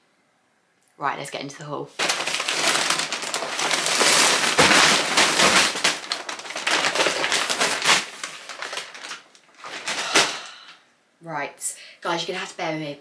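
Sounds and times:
paper bag crinkling: 0:02.0 - 0:10.6.

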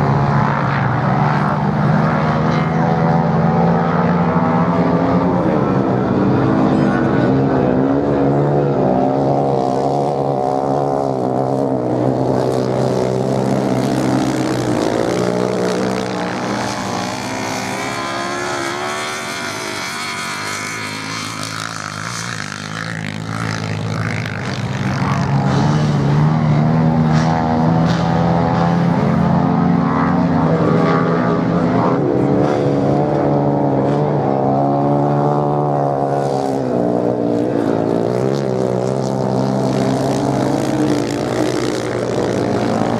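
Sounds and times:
motorcycle engines revving: 0:00.0 - 0:42.9.

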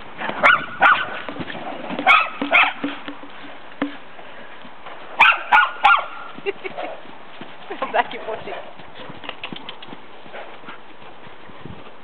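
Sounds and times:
horse hoofbeats: 0:00.0 - 0:12.0
dogs barking: 0:00.4 - 0:01.2, 0:02.0 - 0:02.9, 0:05.2 - 0:06.3.

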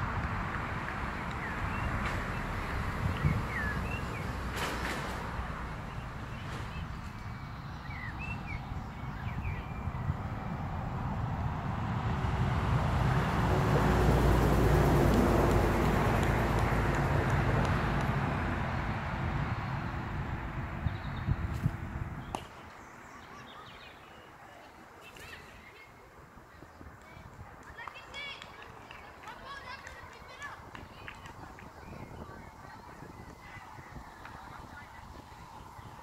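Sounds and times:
vehicle passing: 0:00.0 - 0:22.4
birds chirping: 0:01.0 - 0:04.6, 0:05.2 - 0:10.6, 0:19.4 - 0:27.0.

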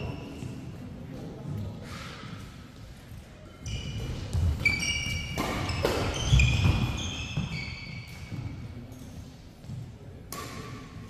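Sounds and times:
racket hitting shuttlecock: 0:03.9 - 0:08.6, 0:10.3 - 0:11.0.

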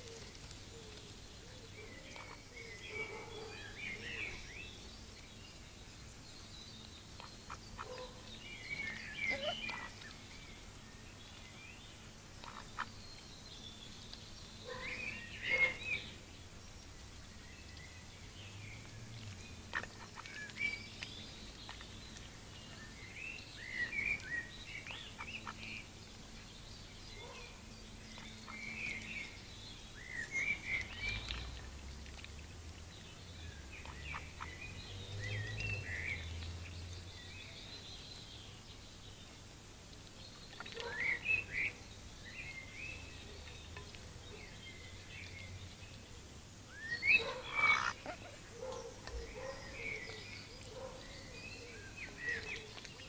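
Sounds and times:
bird chirps and calls: 0:06.6 - 0:10.4, 0:12.4 - 0:16.2, 0:17.6 - 0:31.6, 0:33.1 - 0:38.6, 0:40.3 - 0:46.1, 0:46.7 - 0:53.0
duck bill clicking and dabbling: 0:06.8 - 0:10.4, 0:16.7 - 0:23.0, 0:30.3 - 0:34.7, 0:39.8 - 0:41.0, 0:43.0 - 0:44.5.

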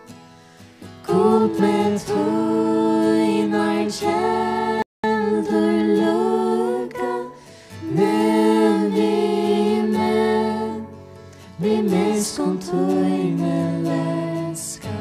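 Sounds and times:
voices singing a slow worship song: 0:00.4 - 0:15.0.

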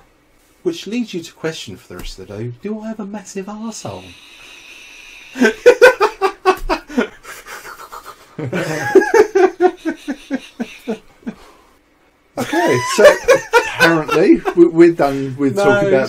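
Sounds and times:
men laughing: 0:05.2 - 0:11.6, 0:12.4 - 0:16.0.

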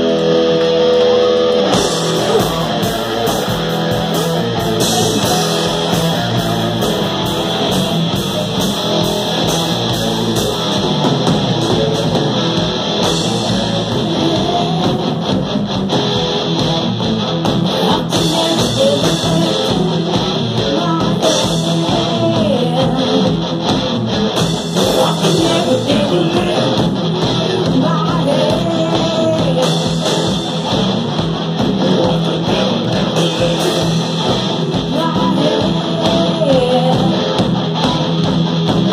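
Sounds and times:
drum kit: 0:00.0 - 0:38.9
electric guitars: 0:00.0 - 0:38.9
woman singing into a microphone: 0:17.7 - 0:23.4, 0:27.4 - 0:30.0, 0:34.8 - 0:37.3.

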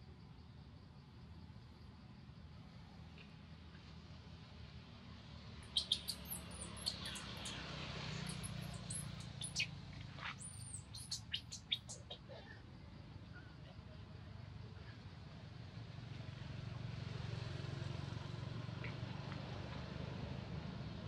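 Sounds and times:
high-pitched animal chirps: 0:05.7 - 0:07.6, 0:08.2 - 0:09.7, 0:10.3 - 0:12.2.

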